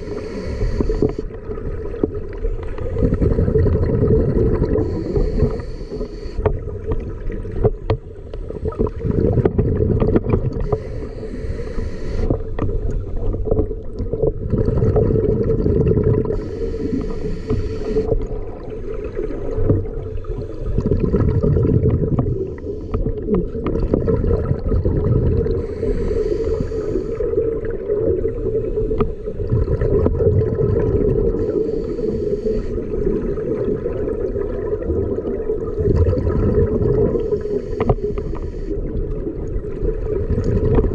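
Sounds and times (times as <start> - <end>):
breath hissing through regulator: 0.0 - 1.3, 4.3 - 6.5, 10.5 - 13.3, 16.0 - 18.2, 20.2 - 21.1, 25.4 - 27.4, 31.2 - 33.1, 37.0 - 38.9
regulator bubbles underwater: 0.0 - 40.9.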